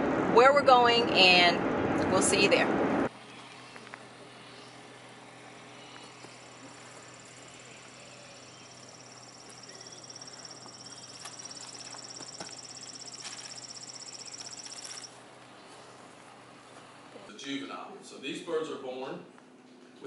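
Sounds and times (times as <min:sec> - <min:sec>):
insect trilling: 0:06.4 - 0:15.1.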